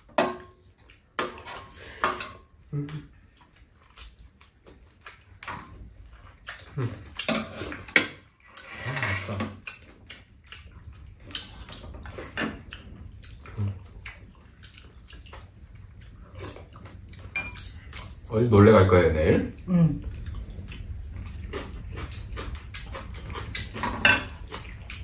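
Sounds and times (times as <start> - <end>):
utensils scraping bowls: 1.2 - 2.4, 7.2 - 9.9
slurping soup: 6.5 - 9.9.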